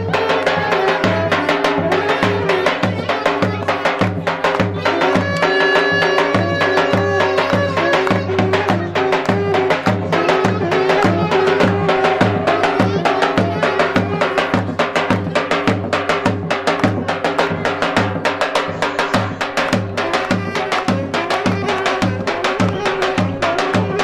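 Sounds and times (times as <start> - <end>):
saxophone and clarinet melody: 0.0 - 4.0, 4.8 - 14.8, 19.3 - 24.0
bass drum beating: 0.0 - 24.0.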